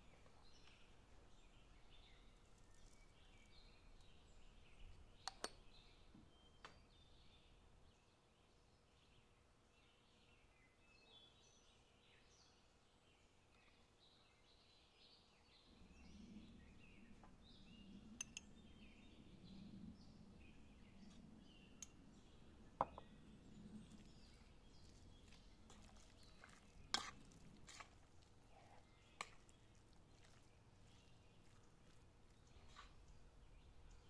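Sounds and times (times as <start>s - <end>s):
spoon scraping in bowl: 25.7s - 29.5s.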